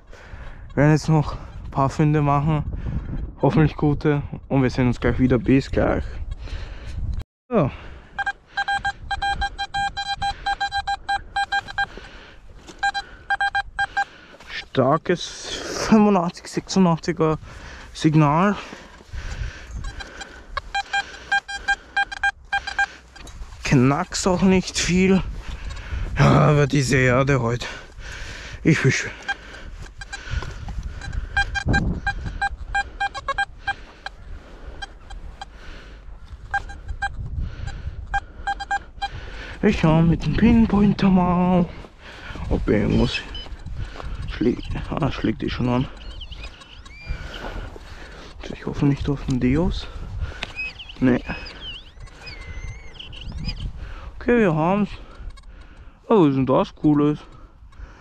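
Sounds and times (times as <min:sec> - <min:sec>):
metal detector beeping: 0:08.1 - 0:12.0, 0:12.6 - 0:15.1, 0:19.6 - 0:24.9, 0:28.7 - 0:34.2, 0:34.8 - 0:35.5, 0:36.3 - 0:37.2, 0:38.0 - 0:47.8, 0:48.8 - 0:53.6
metal detector short beeps: 0:08.2 - 0:11.9, 0:12.8 - 0:14.1, 0:19.9 - 0:23.3, 0:31.0 - 0:33.8, 0:36.5 - 0:37.2, 0:38.1 - 0:39.2, 0:42.8 - 0:43.6.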